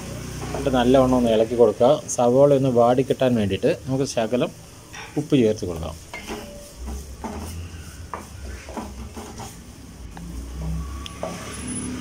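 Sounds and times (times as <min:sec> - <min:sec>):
spatula scraping a pot: 0:04.8 - 0:12.0.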